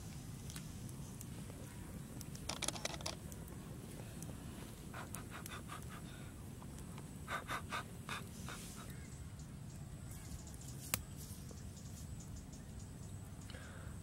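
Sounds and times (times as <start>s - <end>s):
breathy blowing puffs: 4.0s - 6.5s, 7.2s - 8.9s.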